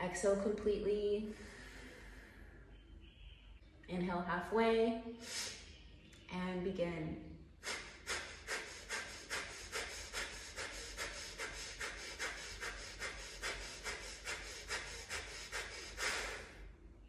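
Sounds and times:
forceful nasal exhales: 1.3s - 2.7s, 5.2s - 5.7s, 7.6s - 16.8s.

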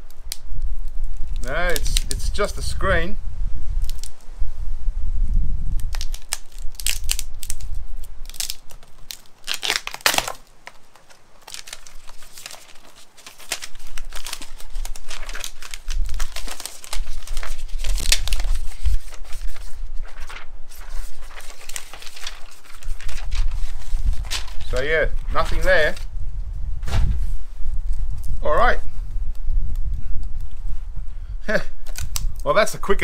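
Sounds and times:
screen layers crinkling and tearing: 0.0s - 2.5s, 3.8s - 4.2s, 5.8s - 26.1s, 31.8s - 32.4s.

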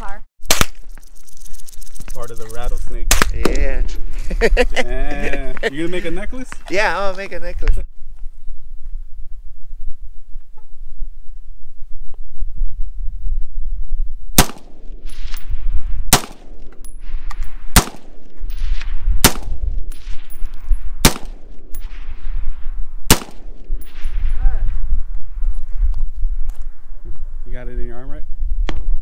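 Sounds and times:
rifle shots with echo: 14.4s - 15.4s, 16.1s - 16.6s, 17.7s - 20.1s, 21.0s - 22.0s, 23.1s - 24.1s.

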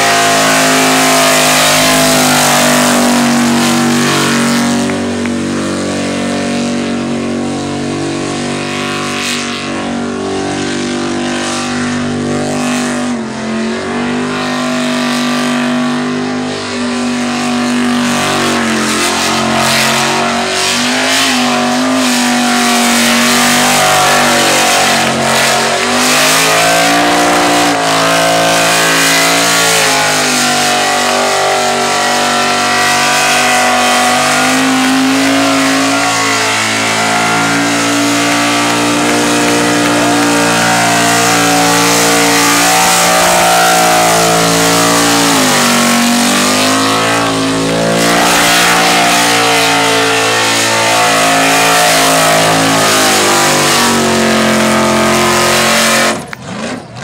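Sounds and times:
car engine revving high: 0.0s - 57.0s
spinning tyres hissing: 13.6s - 56.4s.

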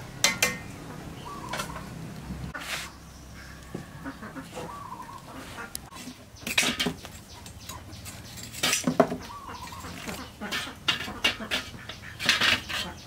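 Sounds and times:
metal cookware clattering: 0.2s - 0.7s, 6.4s - 13.0s.

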